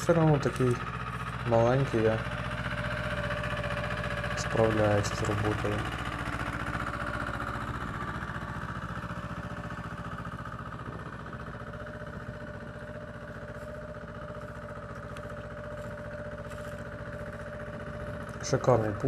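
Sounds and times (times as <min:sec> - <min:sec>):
tractor engine droning: 0:00.0 - 0:19.0.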